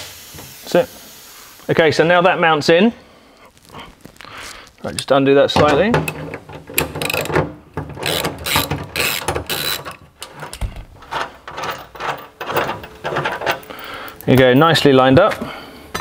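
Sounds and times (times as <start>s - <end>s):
ratchet spanner clicking: 6.8s - 7.4s, 8.0s - 10.3s.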